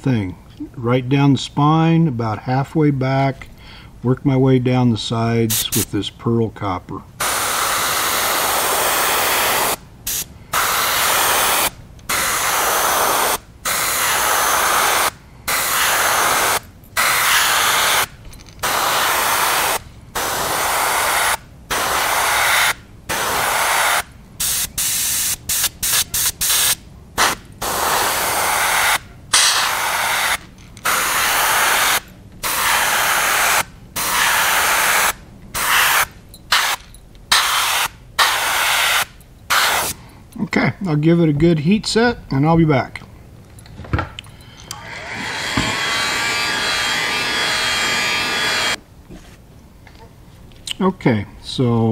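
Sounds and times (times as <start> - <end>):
airbrush air hiss: 7.2 - 40.0, 44.6 - 48.8.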